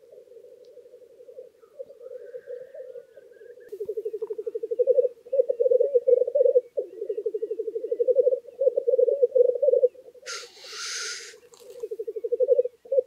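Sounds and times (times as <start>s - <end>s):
grouse rolling coo: 0.0s - 13.0s
short harsh hiss: 10.3s - 11.4s.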